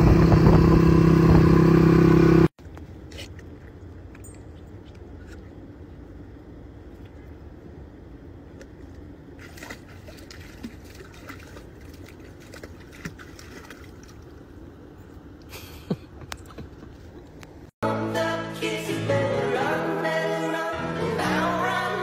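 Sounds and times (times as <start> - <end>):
dog splashing through water: 9.4 - 14.4.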